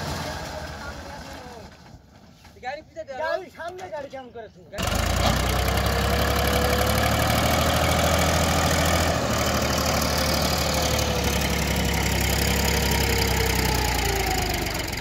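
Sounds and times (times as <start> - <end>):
diesel tractor engines idling: 4.8 - 15.0.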